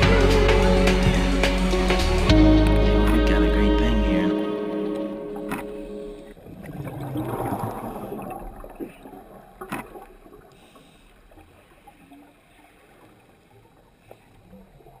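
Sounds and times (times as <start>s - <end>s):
low underwater hush: 0.0s - 15.0s
underwater gurgling wash: 4.8s - 15.0s.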